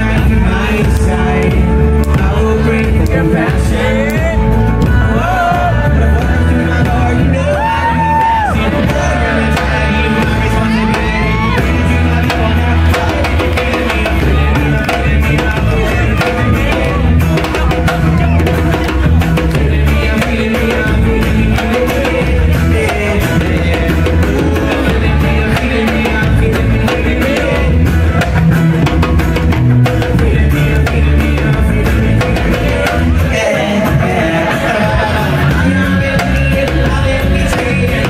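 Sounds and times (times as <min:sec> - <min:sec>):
live band playing: 0:00.0 - 0:38.0
man singing: 0:00.0 - 0:38.0.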